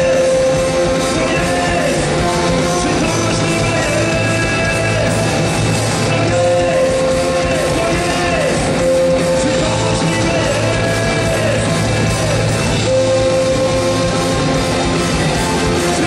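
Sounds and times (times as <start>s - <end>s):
person singing: 0.0s - 5.4s, 6.0s - 16.0s
bass guitar: 0.0s - 16.0s
drums: 0.0s - 16.0s
electric guitar: 0.0s - 16.0s.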